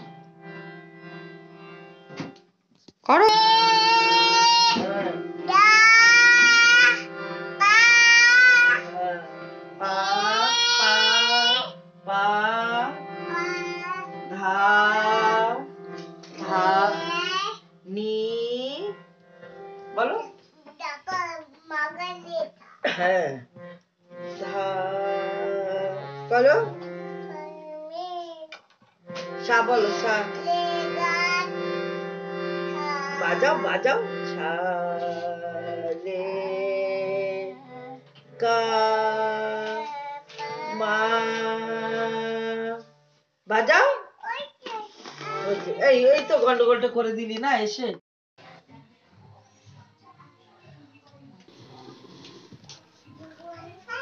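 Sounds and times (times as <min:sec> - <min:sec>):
harmonium drone: 0:00.0 - 0:02.3, 0:03.1 - 0:20.2, 0:23.6 - 0:27.5, 0:29.0 - 0:36.0, 0:45.2 - 0:46.8
toddler singing loudly: 0:03.3 - 0:04.8, 0:07.6 - 0:08.8, 0:09.9 - 0:11.7, 0:16.9 - 0:17.6, 0:53.5 - 0:54.0
child singing: 0:03.3 - 0:08.9, 0:09.8 - 0:11.8, 0:13.3 - 0:14.3, 0:16.4 - 0:17.6, 0:20.6 - 0:22.8, 0:27.3 - 0:28.6, 0:30.2 - 0:31.7, 0:32.7 - 0:33.4, 0:37.3 - 0:38.1, 0:39.5 - 0:41.4, 0:53.1 - 0:54.0.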